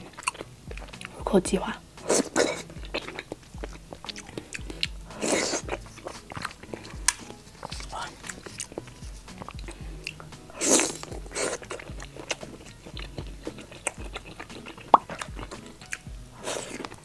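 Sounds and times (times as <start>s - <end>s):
chewing and wet mouth sounds: 0.0s - 17.0s
breathy rushes: 2.0s - 13.9s.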